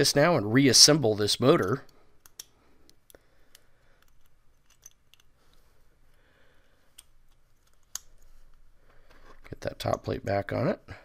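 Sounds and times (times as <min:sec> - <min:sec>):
small metal parts clicking: 0:02.2 - 0:05.6, 0:06.9 - 0:08.3.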